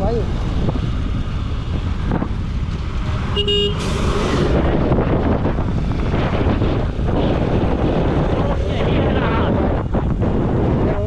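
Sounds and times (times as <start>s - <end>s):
wind buffeting microphone: 0.0s - 11.0s
vehicle horn toot: 3.3s - 4.0s.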